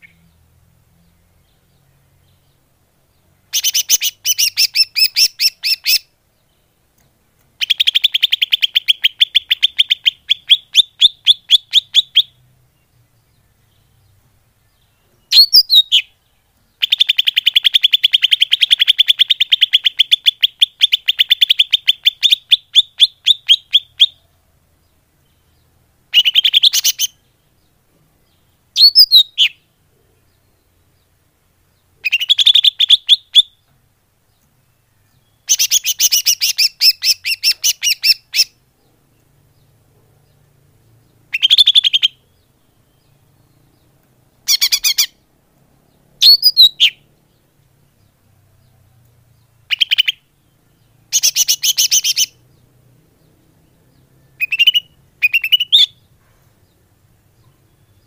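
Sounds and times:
rapid high bird chirps: 0:01.1 - 0:06.2, 0:07.5 - 0:14.1, 0:14.8 - 0:24.3, 0:25.2 - 0:33.7, 0:34.3 - 0:58.0
single sweeping bird calls: 0:03.5 - 0:06.1, 0:15.3 - 0:16.1, 0:26.1 - 0:27.2, 0:28.8 - 0:29.6, 0:32.0 - 0:33.6, 0:35.4 - 0:38.6, 0:41.3 - 0:42.4, 0:44.4 - 0:45.3, 0:46.2 - 0:47.1, 0:49.7 - 0:50.4, 0:51.1 - 0:52.4, 0:54.4 - 0:56.1.

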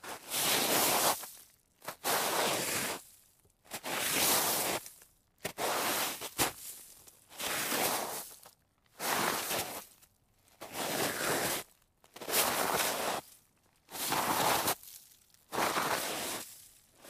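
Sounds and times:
sliding scrape across snow: 0:00.0 - 0:01.3, 0:01.9 - 0:03.0, 0:03.7 - 0:08.4, 0:09.0 - 0:09.8, 0:10.6 - 0:13.3, 0:13.9 - 0:14.8, 0:15.5 - 0:16.8.

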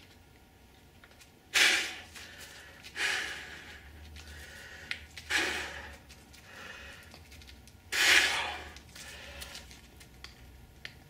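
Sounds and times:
man breathing forcefully: 0:01.5 - 0:07.2, 0:07.9 - 0:09.7.

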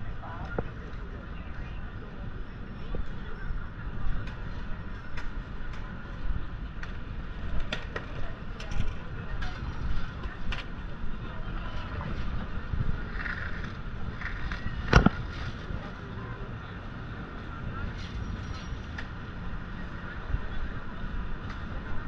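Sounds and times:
traffic rumble: 0:00.0 - 0:22.0
clicks and knocks from passersby: 0:04.1 - 0:06.0, 0:06.7 - 0:10.9, 0:11.9 - 0:16.0, 0:17.9 - 0:19.2, 0:21.4 - 0:22.0.

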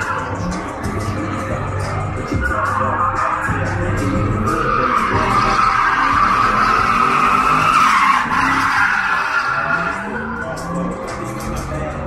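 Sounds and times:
car engine running hard: 0:00.0 - 0:12.0
tyres squealing: 0:02.4 - 0:10.4.

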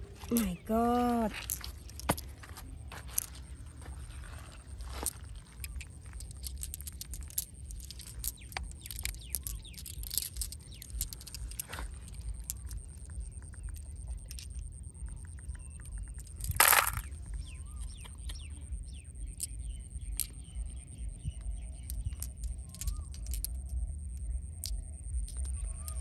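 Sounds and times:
birds chirping: 0:00.0 - 0:26.0
stones clicking together: 0:00.2 - 0:26.0.

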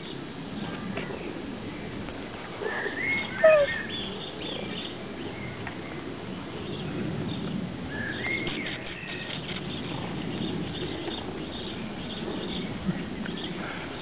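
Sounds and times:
small birds chirping: 0:02.8 - 0:06.0.

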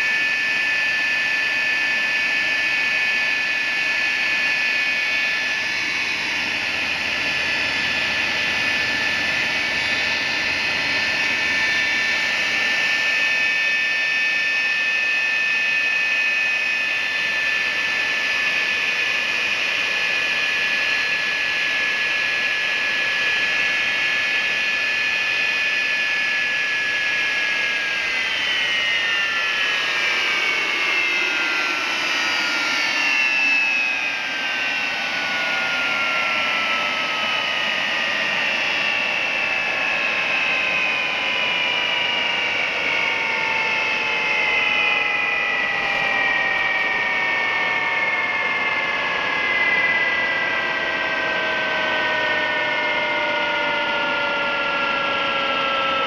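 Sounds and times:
high compressor whine: 0:00.0 - 0:56.0
turbojet engine running: 0:00.0 - 0:56.0.

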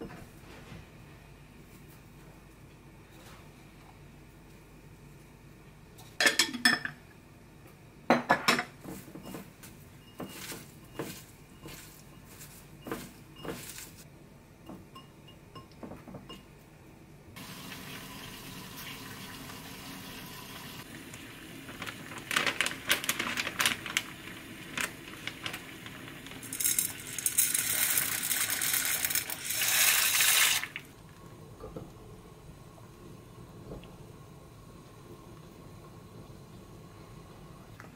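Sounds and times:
dishes clattering: 0:06.2 - 0:07.0, 0:08.1 - 0:09.4
running water: 0:17.4 - 0:21.1.

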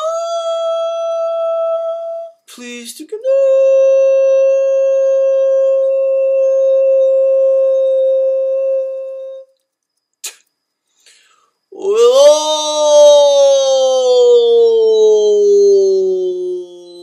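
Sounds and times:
quick breath: 0:10.9 - 0:11.6.

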